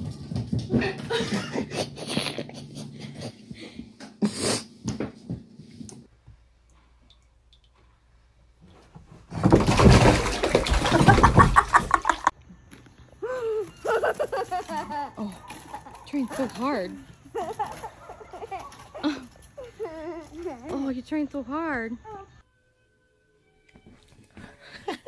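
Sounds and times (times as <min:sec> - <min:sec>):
cat splashing in bathtub water: 0:09.6 - 0:12.3.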